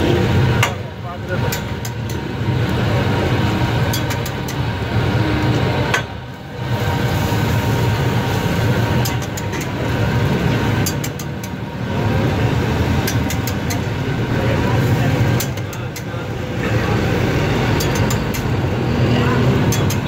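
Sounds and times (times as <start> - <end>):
metal spatula scraping on griddle: 13.0 - 13.9, 19.6 - 20.0.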